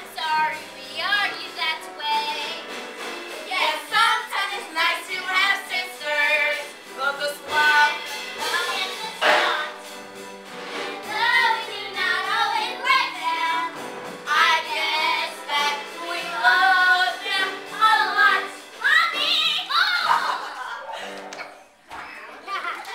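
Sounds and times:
instrumental accompaniment: 0.0s - 19.4s
girls singing together: 3.4s - 9.9s, 10.9s - 20.6s.

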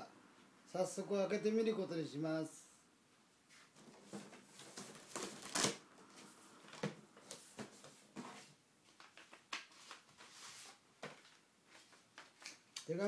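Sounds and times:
cardboard scraping and rustling: 3.7s - 5.8s
packing tape ripping off box: 4.8s - 5.8s.

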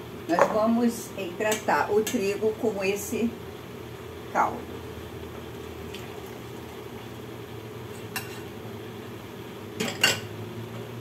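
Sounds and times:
steady low hum: 0.0s - 11.0s
cookware and utensils clinking: 9.8s - 10.3s.

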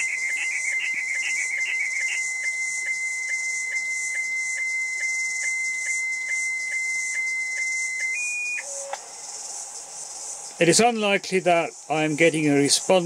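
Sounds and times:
high whistle-like signal tone: 0.0s - 9.0s
radio hiss: 10.5s - 13.0s.

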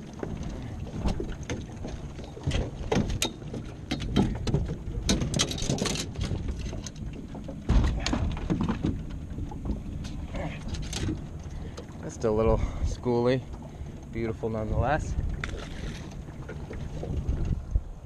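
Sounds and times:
knocks against boat hull: 7.6s - 9.0s
heavy thump: 7.7s - 8.7s.

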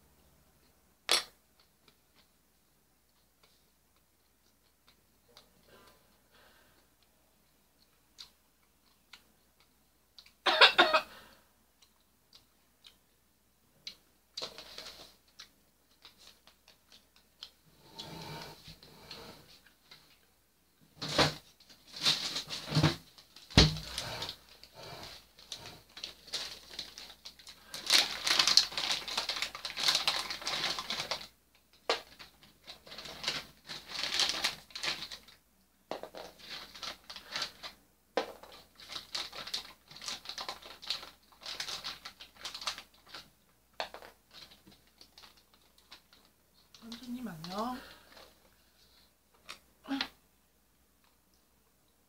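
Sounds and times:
plastic food packet crinkling: 14.4s - 18.2s, 21.0s - 48.5s.

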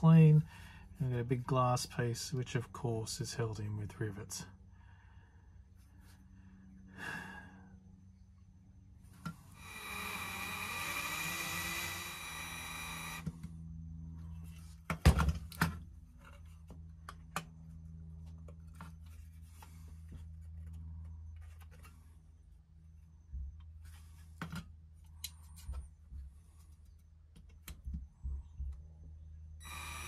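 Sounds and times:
steady whirring hiss: 9.1s - 13.5s, 29.6s - 30.0s.

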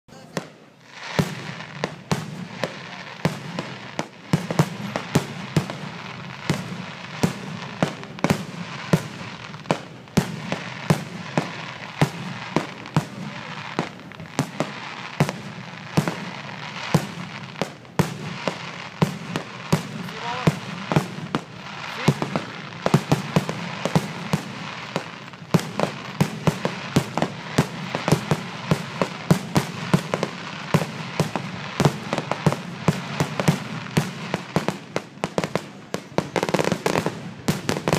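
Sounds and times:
fireworks bangs: 0.1s - 37.9s.

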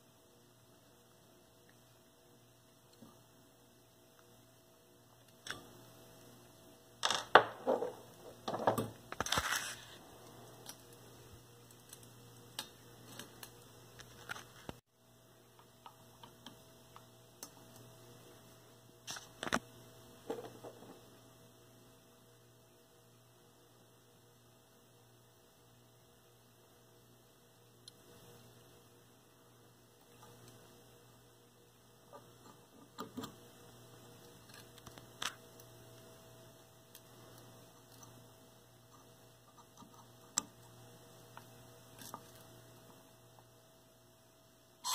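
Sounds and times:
low mains hum: 0.0s - 44.9s
clicks and knocks of small parts: 34.2s - 35.7s.

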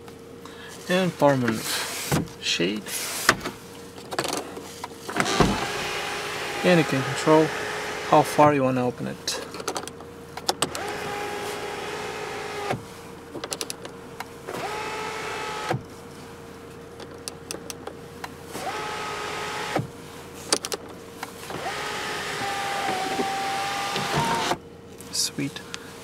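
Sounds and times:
sunroof motor whining: 5.0s - 8.5s, 10.5s - 13.3s, 14.4s - 15.9s, 18.5s - 19.9s, 21.4s - 24.6s.

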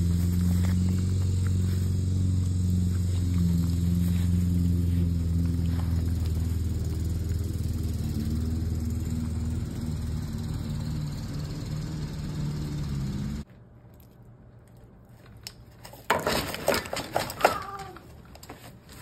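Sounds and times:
engine idling: 0.0s - 13.4s.

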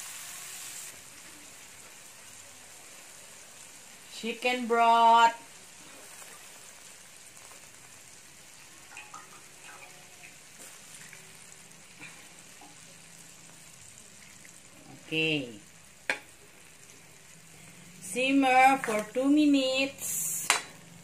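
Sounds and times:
broth sizzling in a wok: 0.0s - 21.0s
metal ladle stirring: 8.9s - 10.3s.

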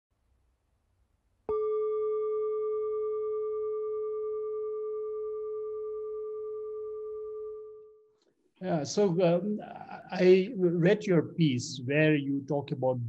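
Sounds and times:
singing bowl ringing: 1.5s - 8.2s.

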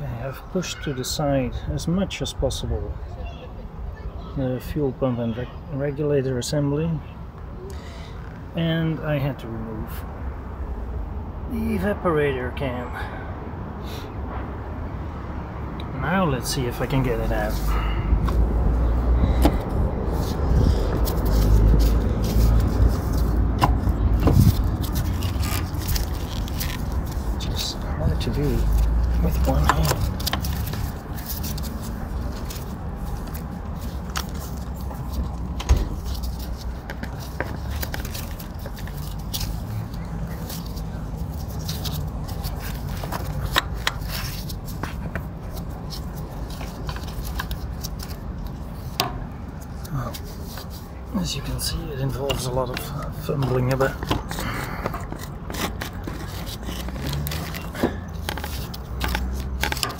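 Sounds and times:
gloved hand scraping metal parts: 19.3s - 59.9s.

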